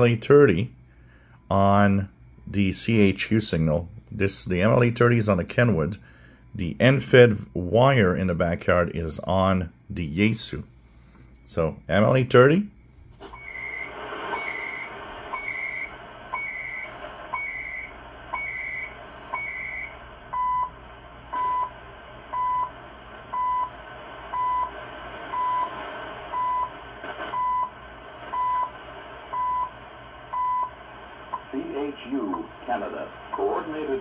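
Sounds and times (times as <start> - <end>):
shortwave static hiss: 6.8 - 34.0
beeps: 13.3 - 24.7, 25.3 - 26.7, 27.3 - 31.4.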